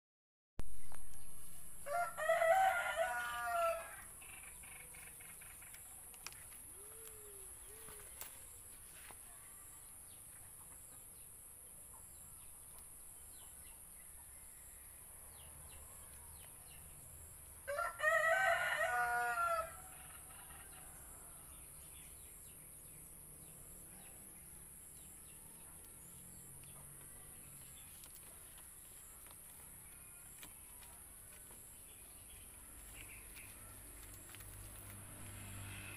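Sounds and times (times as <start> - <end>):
rooster crowing: 1.8 - 4.1, 17.7 - 21.4
faint bird chirps: 6.7 - 8.6.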